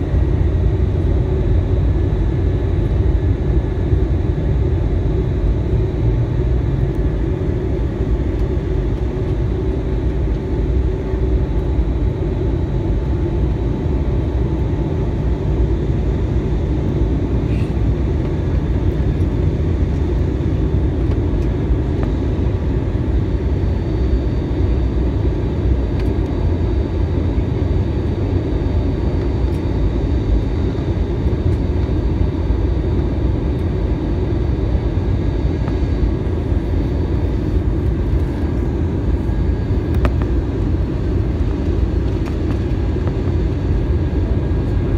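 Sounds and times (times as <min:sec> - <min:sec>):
faint high steady whine: 0:00.0 - 0:44.9
jet engines rumbling: 0:00.0 - 0:44.9.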